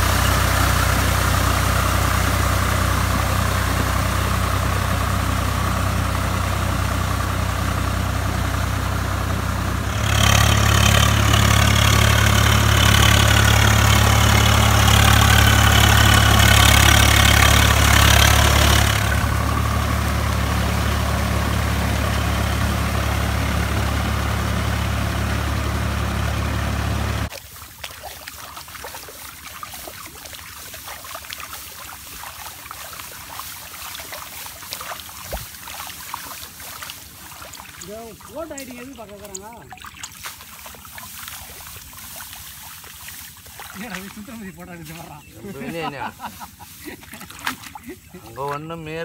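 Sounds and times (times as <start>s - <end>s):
tractor diesel engine running: 0.0s - 27.8s, 28.6s - 46.6s
small splashes in muddy water: 9.8s - 22.6s, 27.3s - 49.0s.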